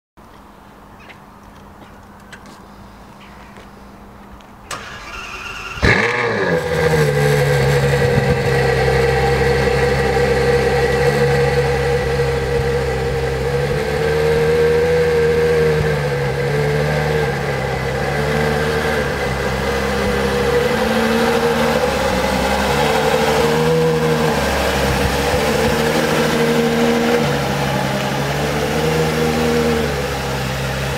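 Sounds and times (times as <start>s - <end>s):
engine starter cranking: 4.7s - 7.1s
car engine idling: 4.7s - 30.9s.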